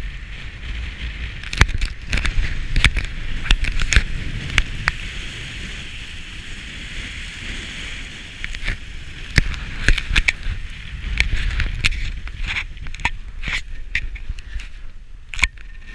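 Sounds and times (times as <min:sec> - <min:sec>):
ski edges scraping snow: 0:00.0 - 0:15.0
wind rumbling on microphone: 0:00.0 - 0:15.9
skis hissing over snow: 0:02.0 - 0:14.9.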